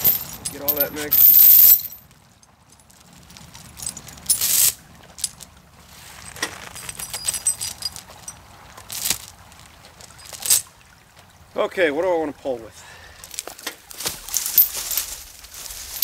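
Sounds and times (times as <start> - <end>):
steel chain clinking and rattling: 0.0 - 5.4, 6.1 - 9.4, 10.0 - 10.7, 14.1 - 16.0.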